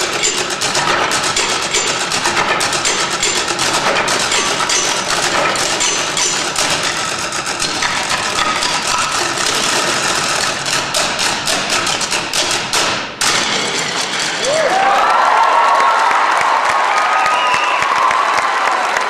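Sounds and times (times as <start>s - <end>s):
sticks striking wooden stools: 0.0s - 14.9s
applause: 14.4s - 19.0s.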